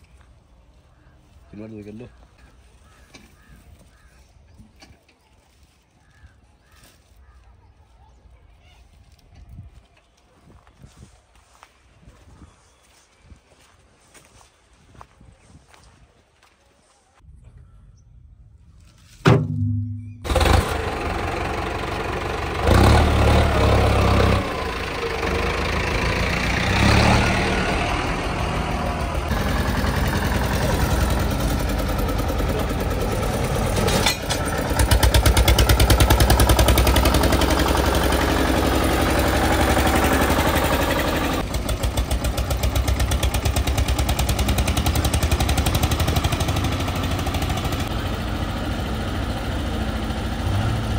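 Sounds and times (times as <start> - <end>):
diesel tractor engines running: 20.2 - 50.9.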